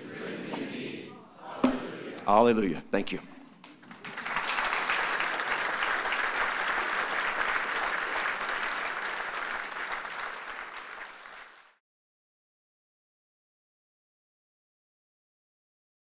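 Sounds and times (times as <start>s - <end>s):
audience applauding: 3.6s - 11.8s.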